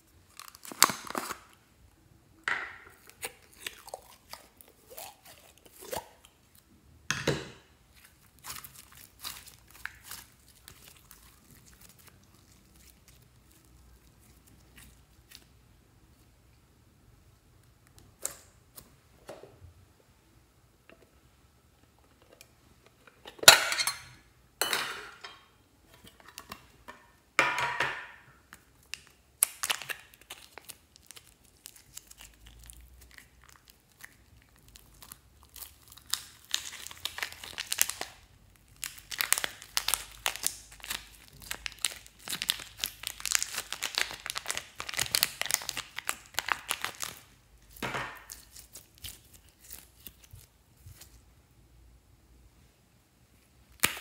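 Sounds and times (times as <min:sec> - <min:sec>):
slime crackling and popping: 0:07.9 - 0:15.5, 0:28.6 - 0:50.6, 0:53.7 - 0:54.0.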